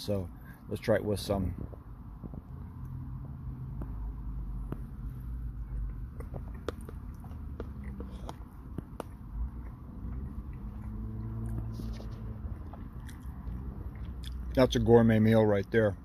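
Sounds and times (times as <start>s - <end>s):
low steady hum: 0.0s - 16.0s
person chewing food: 3.7s - 14.6s.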